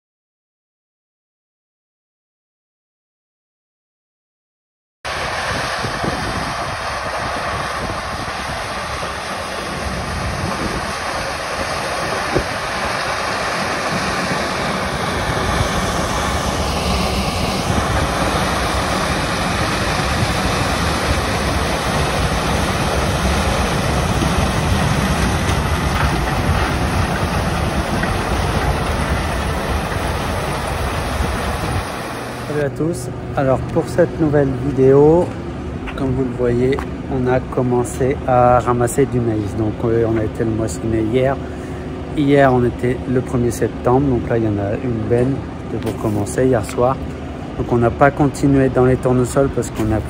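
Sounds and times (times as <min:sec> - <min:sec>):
combine harvester running: 0:05.1 - 0:50.0.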